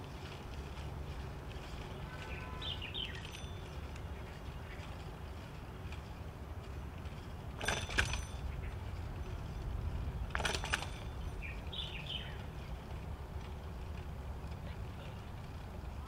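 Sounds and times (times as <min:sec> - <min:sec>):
bicycle rattling: 0:00.0 - 0:16.0
steady low rumble: 0:00.0 - 0:16.0
bird chirps: 0:01.9 - 0:04.9, 0:11.2 - 0:12.5.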